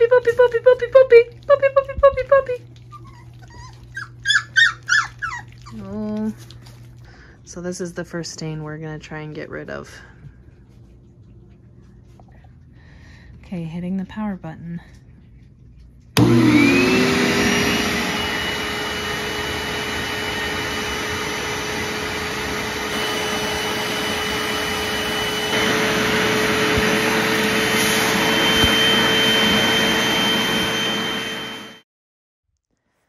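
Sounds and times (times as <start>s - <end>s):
carpet cleaner motor whining: 16.2s - 31.8s.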